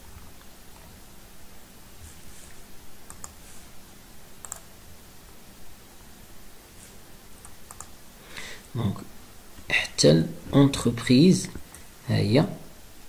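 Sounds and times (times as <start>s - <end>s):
computer mouse clicks: 3.1s - 3.4s, 4.4s - 4.7s, 7.4s - 8.0s.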